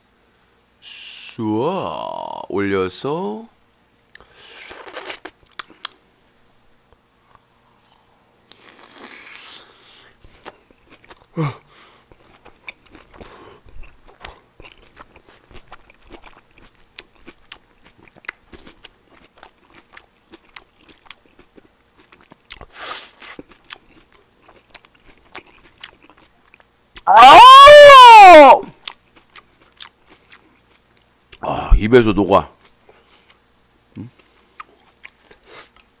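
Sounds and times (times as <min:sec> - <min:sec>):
chewing with wet mouth clicks: 0:04.9 - 0:06.0, 0:10.3 - 0:11.3, 0:12.1 - 0:27.1, 0:28.7 - 0:31.4, 0:32.6 - 0:36.0.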